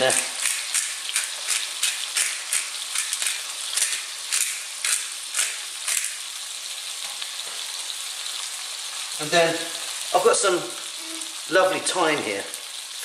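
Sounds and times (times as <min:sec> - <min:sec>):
pepper mill grinding: 0:00.0 - 0:06.5
fish searing in oil: 0:00.0 - 0:13.0.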